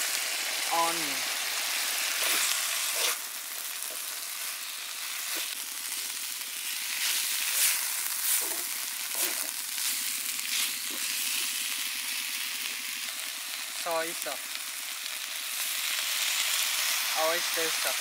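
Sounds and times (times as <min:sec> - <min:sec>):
vegetables sizzling in oil: 0:00.0 - 0:18.0
spatula strokes in wok: 0:02.1 - 0:03.2, 0:03.8 - 0:11.6.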